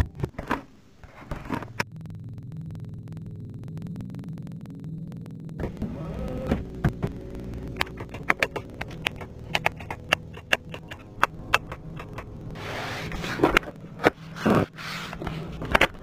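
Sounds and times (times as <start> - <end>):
low steady hum: 0.0 - 16.0
switches clicking: 5.6 - 16.0.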